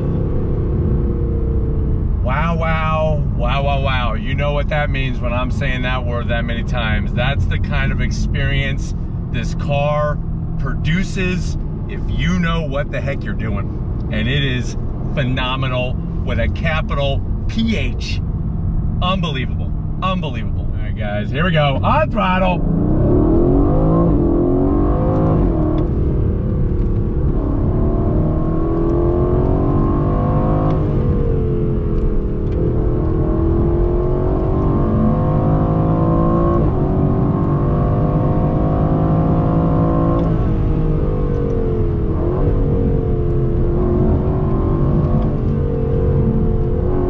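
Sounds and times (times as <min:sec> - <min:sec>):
car engine accelerating through gears: 0:22.5 - 0:47.0.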